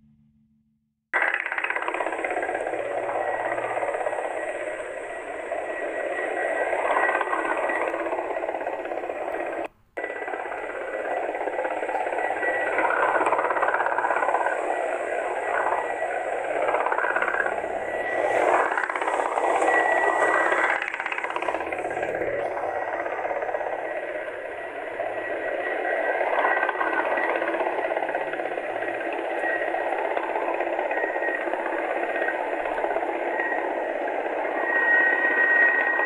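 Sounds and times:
distant helicopter rushing noise: 0:01.2 - 0:36.0
thin steady whistle: 0:01.7 - 0:36.0.

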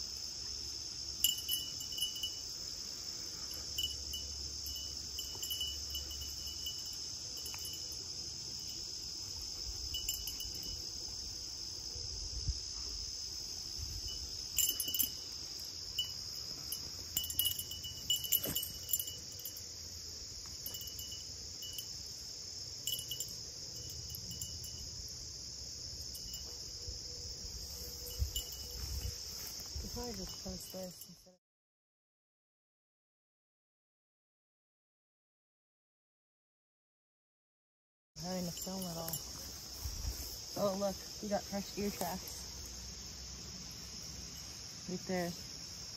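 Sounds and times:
insects chorus: 0:00.0 - 0:31.4, 0:38.2 - 0:45.9
light metallic jingles: 0:01.0 - 0:11.3, 0:13.8 - 0:25.1, 0:25.9 - 0:26.9, 0:27.7 - 0:31.4, 0:38.2 - 0:45.9.

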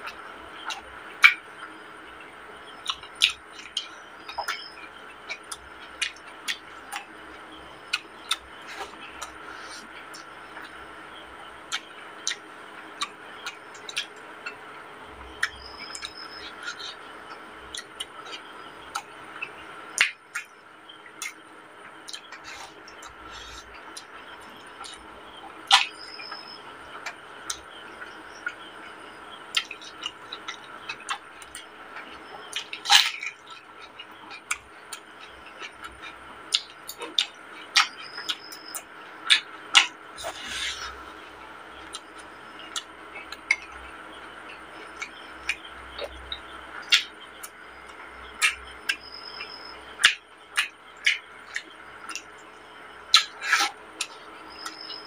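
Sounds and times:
faint steady hum: 0:00.0 - 0:55.0
lip smacks and clicks: 0:07.9 - 0:10.8, 0:11.7 - 0:12.4, 0:13.0 - 0:14.6, 0:21.2 - 0:25.0, 0:29.5 - 0:52.5, 0:53.1 - 0:54.9
wet chewing: 0:07.9 - 0:10.8, 0:15.4 - 0:20.5, 0:29.5 - 0:52.4
slurping: 0:39.3 - 0:42.0.

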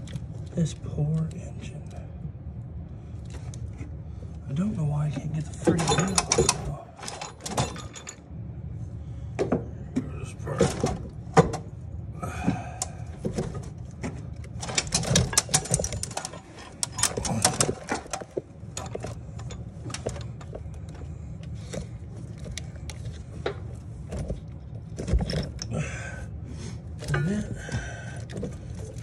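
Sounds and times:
steady low hum: 0:00.0 - 0:29.0
metal tools clinking and rattling: 0:05.3 - 0:08.3, 0:14.4 - 0:25.8, 0:27.0 - 0:29.0.

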